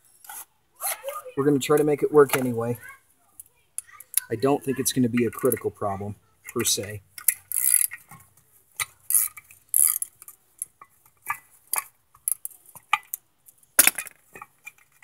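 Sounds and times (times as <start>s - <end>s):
metal tools clinking and scraping: 3.8s - 5.8s
ratchet turning bolt: 6.4s - 8.1s, 9.1s - 10.3s.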